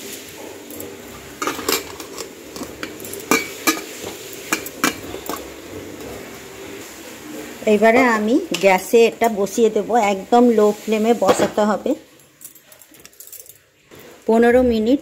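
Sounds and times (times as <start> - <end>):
metal pot lid clinking: 0.7 - 5.5.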